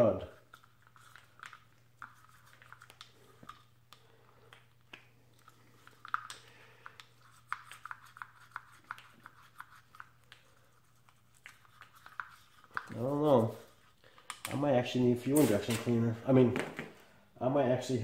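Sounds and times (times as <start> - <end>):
toothbrush scrubbing metal: 7.0 - 14.0.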